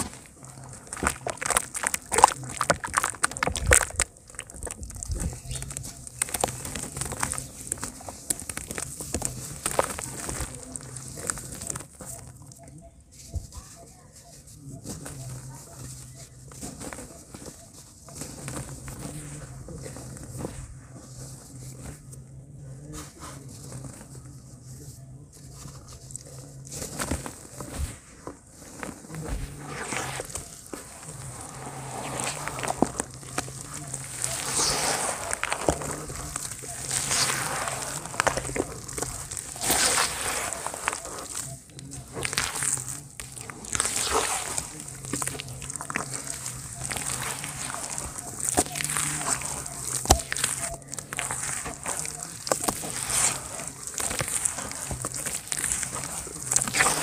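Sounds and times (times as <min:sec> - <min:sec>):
wet squelching: 0:00.0 - 0:12.3, 0:29.2 - 0:57.0
powder pattering into plastic tub: 0:00.0 - 0:12.4
cement crumbling crackles: 0:00.0 - 0:57.0.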